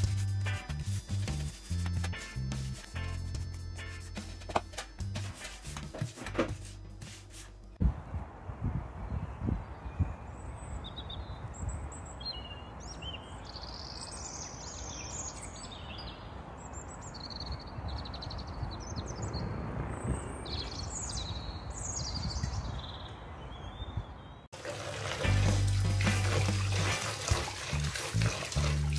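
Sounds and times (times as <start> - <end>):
birds chirping and trilling: 9.1 - 24.5.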